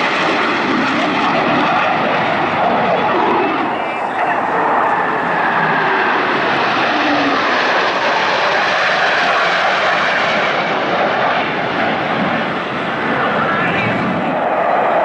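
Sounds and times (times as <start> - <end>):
fighter jets roaring past: 0.0 - 15.0.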